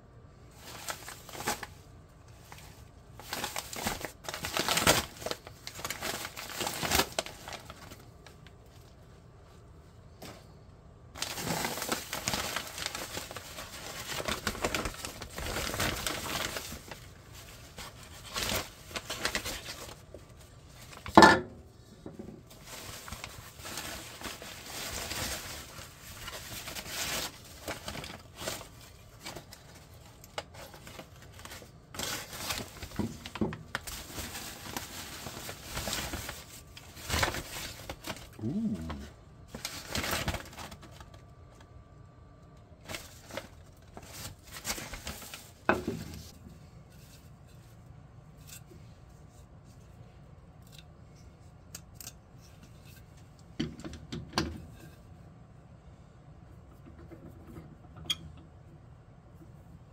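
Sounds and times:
paper bag crinkling: 0.5 - 9.0, 11.2 - 21.2, 22.4 - 41.2, 42.8 - 46.4.

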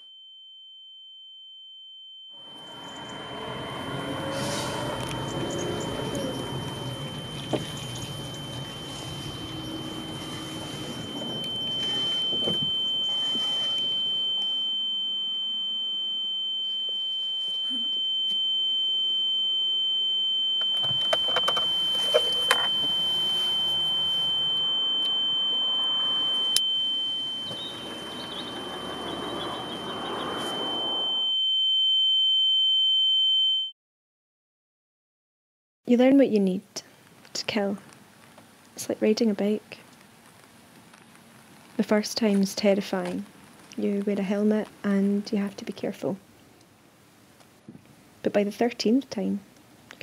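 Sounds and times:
high-pitched electronic tone: 2.3 - 18.4, 20.6 - 31.3.

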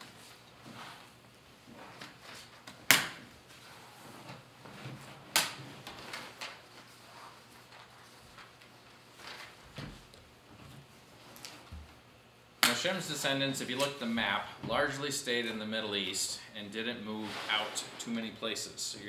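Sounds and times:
paper handling clicks and shuffles: 4.3 - 11.8, 13.6 - 14.1.

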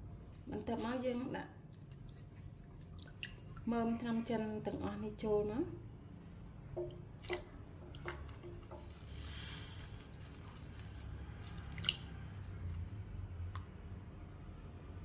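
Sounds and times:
water splashing in a metal pot: 6.7 - 13.6.

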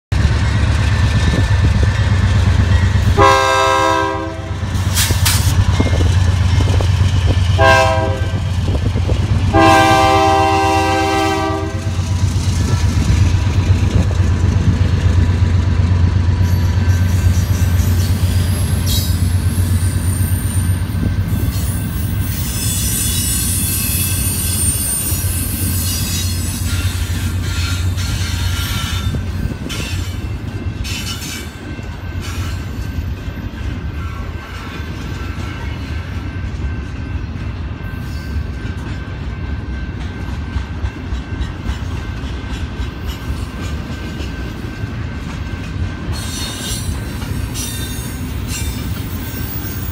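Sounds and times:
train wheels on rails: 0.1 - 49.9
locomotive horn blasts: 3.1 - 4.6, 7.5 - 8.5, 9.5 - 12.2
high wheel squeal: 16.4 - 33.1, 46.1 - 49.9.

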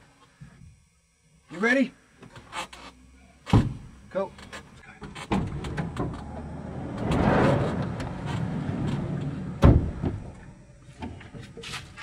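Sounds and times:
bodies bumping van panels: 5.1 - 10.4
van sliding door rolling open: 5.2 - 10.3
heavy thud: 6.9 - 10.4.

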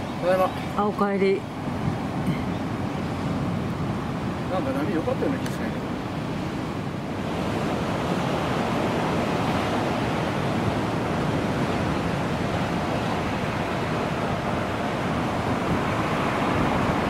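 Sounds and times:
ocean waves breaking: 0.0 - 17.0.

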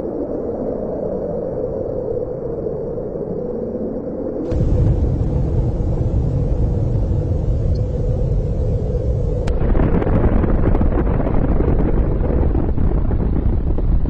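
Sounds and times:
deep explosion rumble: 4.5 - 14.0.

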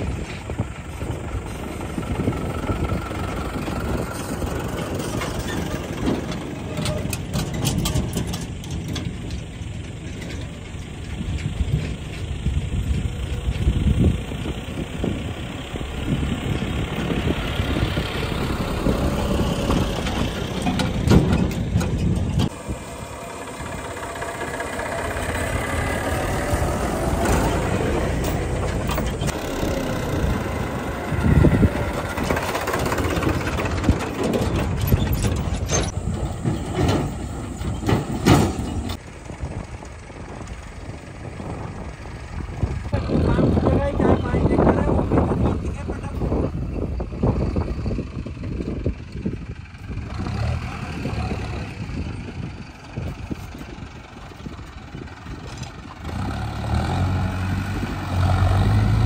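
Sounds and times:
trolleys knocking and clanking: 0.0 - 13.9, 15.9 - 39.0
diesel tractor engines: 0.0 - 59.0.

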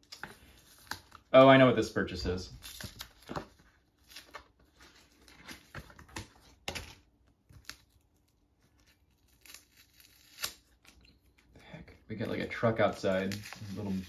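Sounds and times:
cardboard and paper tearing: 8.8 - 10.8, 12.3 - 14.0.

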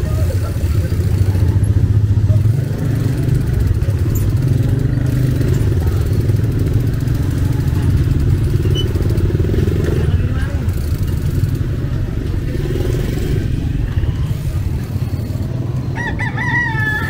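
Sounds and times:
motorcycle engine rumbling: 0.0 - 17.0
street traffic: 0.0 - 17.0.

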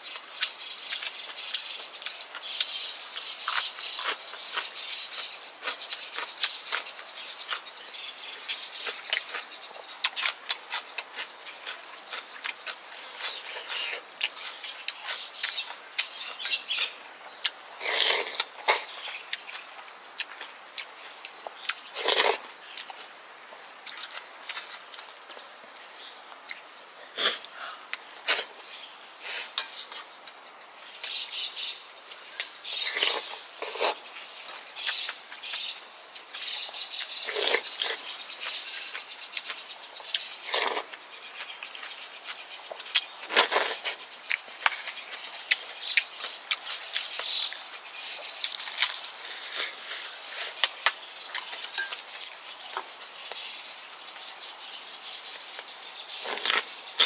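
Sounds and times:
person chewing and smacking: 10.0 - 16.1, 41.6 - 52.4
slurping: 17.8 - 18.9, 40.4 - 40.9.

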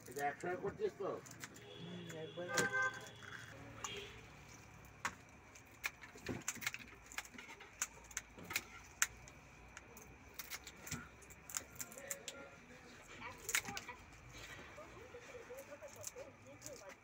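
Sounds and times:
scissors snipping prawn shells: 4.9 - 12.4, 13.3 - 14.2.

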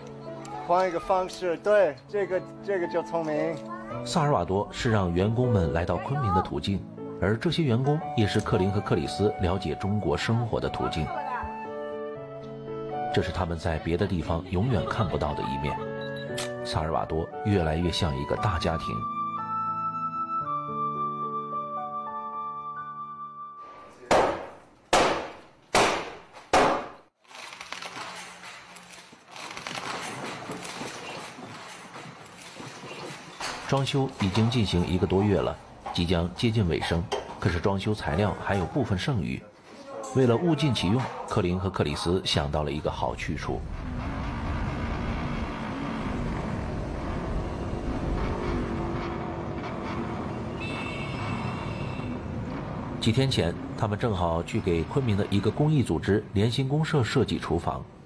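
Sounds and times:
rough demolition work noise: 43.5 - 56.3.

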